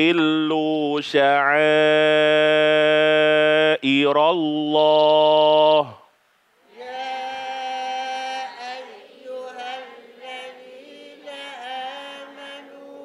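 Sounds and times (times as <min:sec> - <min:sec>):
voices chanting in unison: 0:06.6 - 0:13.0.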